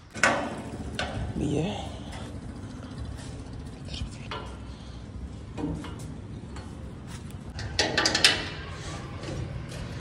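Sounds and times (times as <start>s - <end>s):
metallic clanks and rattles: 0.0s - 4.7s, 7.4s - 10.0s.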